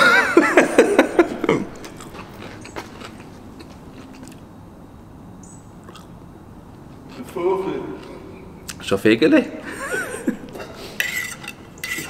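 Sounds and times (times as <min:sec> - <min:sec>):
man chewing food: 0:01.2 - 0:04.7, 0:05.8 - 0:07.2.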